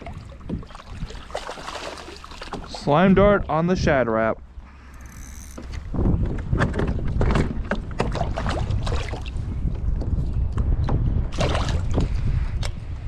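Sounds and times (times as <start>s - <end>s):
water splashing: 0.0s - 3.5s, 8.0s - 9.4s.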